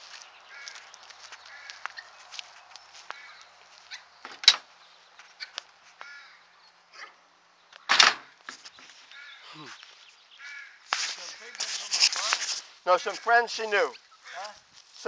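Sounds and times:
crows cawing: 0.1s - 2.4s, 3.0s - 4.0s, 5.4s - 6.5s, 9.0s - 11.6s, 13.0s - 14.6s.

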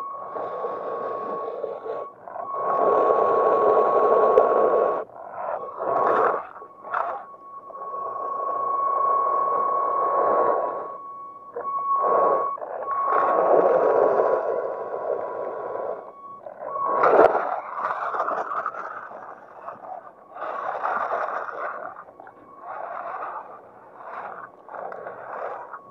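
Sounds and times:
steady high whine: 0.0s - 25.9s.

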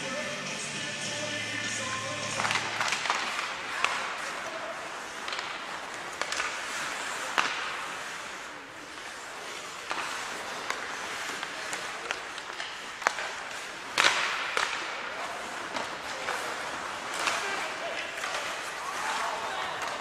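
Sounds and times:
arena music: 0.0s - 2.8s
hockey sticks and puck clacking: 0.4s - 20.0s
skate blades scraping ice: 1.2s - 20.0s.

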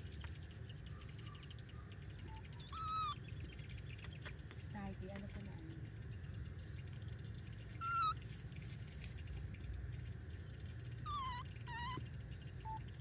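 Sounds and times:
baby monkey coo calls: 2.2s - 3.2s, 7.6s - 8.4s, 11.0s - 13.0s.

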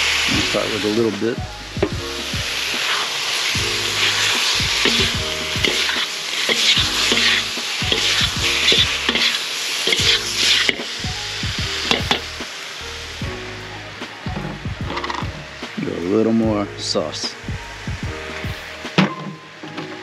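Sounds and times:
food sizzling in a wok: 0.0s - 20.0s
metal utensils scraping a pan: 3.8s - 10.9s.

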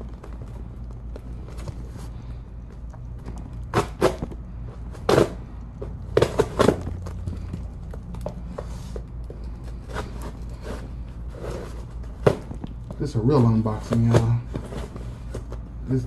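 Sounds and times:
steady low hum: 0.0s - 16.0s
cardboard packaging knocks and rustles: 12.1s - 12.8s.

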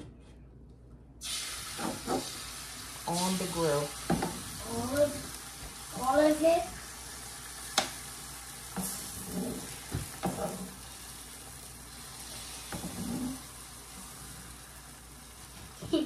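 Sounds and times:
eggs sizzling on a griddle: 1.2s - 16.0s
spatula knocking and scraping: 8.8s - 10.7s.

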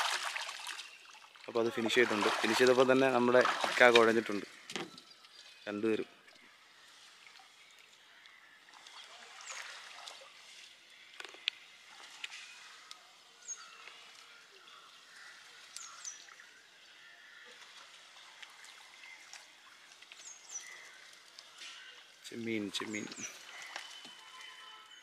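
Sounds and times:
wet net being hauled: 0.0s - 5.0s, 17.6s - 24.8s
light splashes: 0.0s - 5.4s
water dripping: 0.0s - 5.4s, 15.6s - 16.4s.

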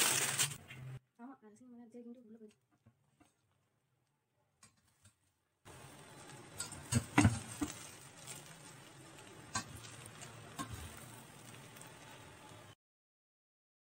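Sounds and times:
rice rustling in pot: 0.0s - 0.6s, 5.7s - 12.7s.

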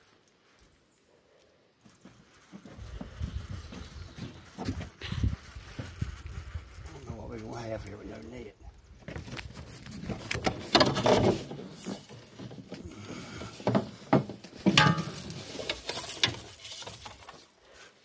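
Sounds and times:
loud clatters of gear: 9.0s - 17.6s
fishing gear knocking and rattling: 9.1s - 17.5s.

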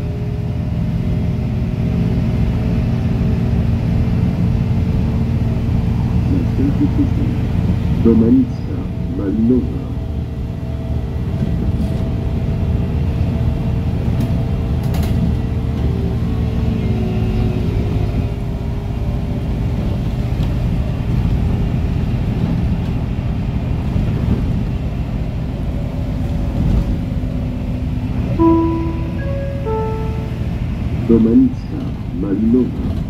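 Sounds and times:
bus engine rumble: 0.0s - 33.0s
faint steady tones: 28.4s - 32.8s.

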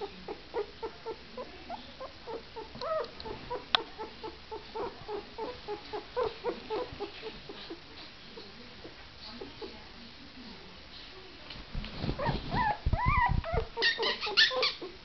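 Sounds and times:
puppy whimpering in high squeaks: 12.2s - 14.9s.

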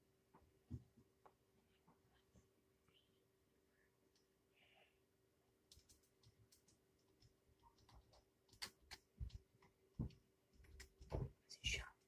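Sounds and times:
faint clicks and taps: 5.6s - 12.0s.

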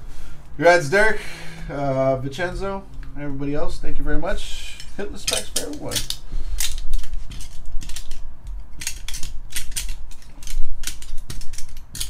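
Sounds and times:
plastic stands clicking and clattering: 5.2s - 12.0s.

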